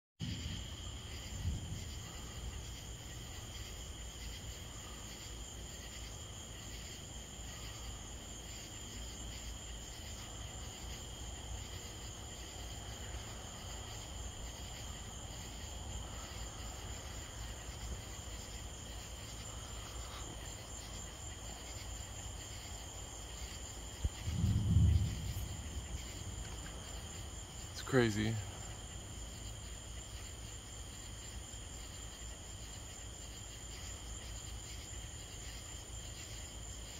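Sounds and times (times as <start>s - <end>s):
crickets trilling: 0.2s - 36.9s
low thump: 24.0s - 27.2s
low rumble: 24.0s - 27.8s.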